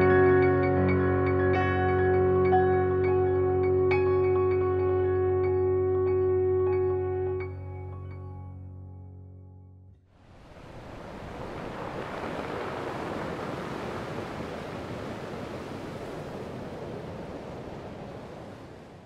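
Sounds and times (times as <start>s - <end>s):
sea surf washing on shore: 10.2s - 19.0s.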